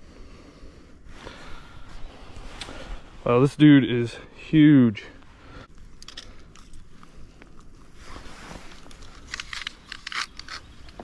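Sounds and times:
faint handling rustling: 5.1 - 9.9.

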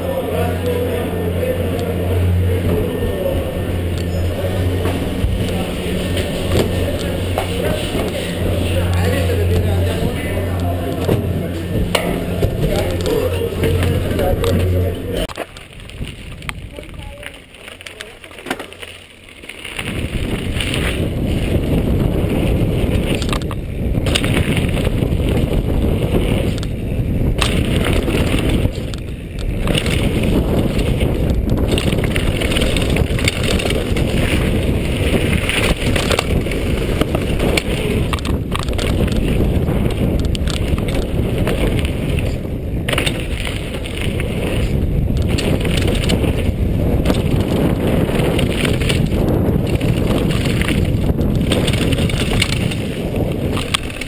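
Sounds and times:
wind on microphone: 0.0 - 17.9, 18.8 - 54.0
bike rattling clicks: 0.0 - 54.0
tyre rumble on gravel: 27.3 - 54.0.

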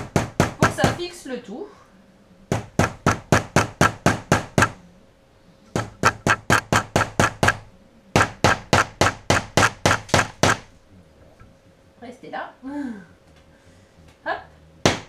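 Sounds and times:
hammer driving nails: 2.5 - 4.8, 5.8 - 7.6, 8.2 - 10.7.

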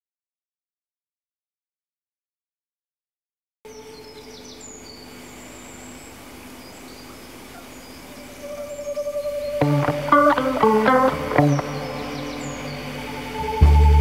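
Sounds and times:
small birds chirping: 3.7 - 13.7
steady musical tone: 8.2 - 14.0
plucked guitar notes: 8.6 - 14.0.

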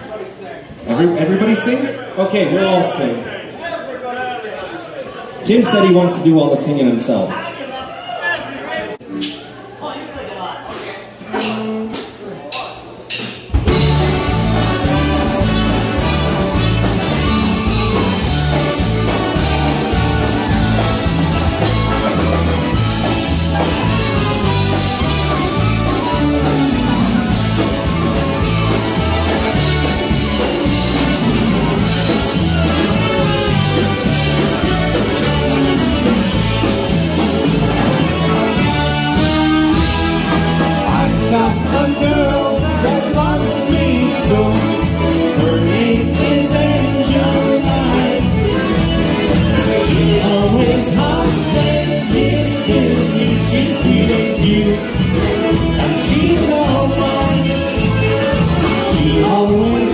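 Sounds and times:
drum kit: 11.3 - 59.9
electric bass: 13.5 - 59.9
concertinas and accordion: 13.7 - 59.9.

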